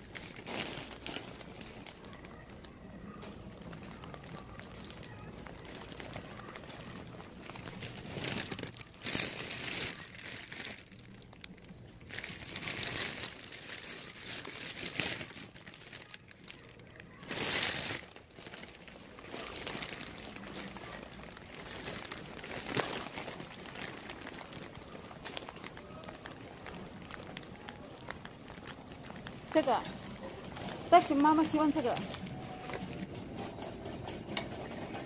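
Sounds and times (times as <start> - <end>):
plastic packaging crinkling: 0.0 - 35.0.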